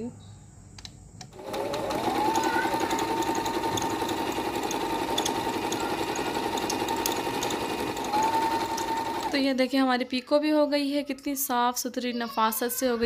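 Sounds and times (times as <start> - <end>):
sewing machine running fast: 1.3 - 9.4.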